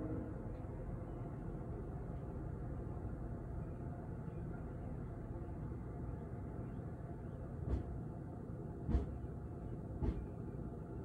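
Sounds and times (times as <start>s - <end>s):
distant city traffic rumble: 0.0s - 11.0s.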